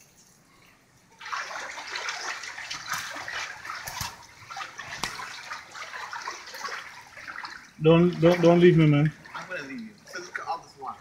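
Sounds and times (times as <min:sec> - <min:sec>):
floodwater splashing around wading feet: 0:01.2 - 0:11.0.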